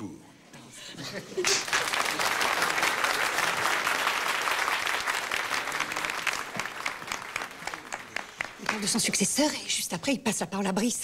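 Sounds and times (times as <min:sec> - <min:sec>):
audience applauding: 0:01.4 - 0:09.2.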